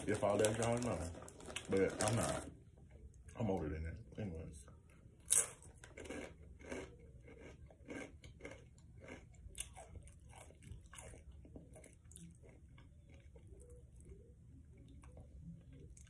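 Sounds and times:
person chewing crunchy snack: 5.3 - 13.8.

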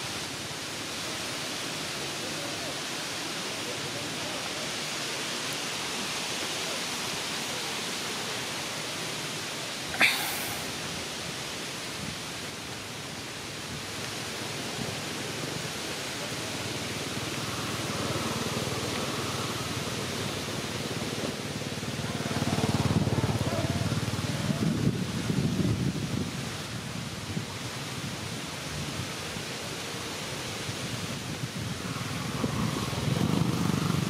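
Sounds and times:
outdoor background hiss: 0.0 - 34.0
wind rumble on microphone: 10.6 - 34.0.

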